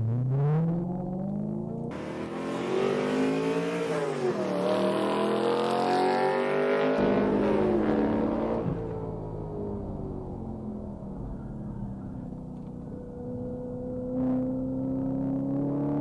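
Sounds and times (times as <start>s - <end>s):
car engine revving hard: 1.9s - 9.0s.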